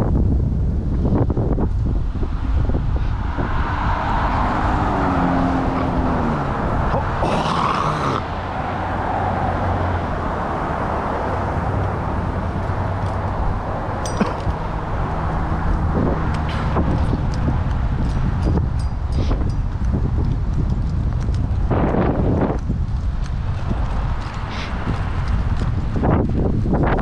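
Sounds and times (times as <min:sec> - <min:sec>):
wind rumble on microphone: 0:00.0 - 0:27.0
car passing by: 0:02.1 - 0:18.0.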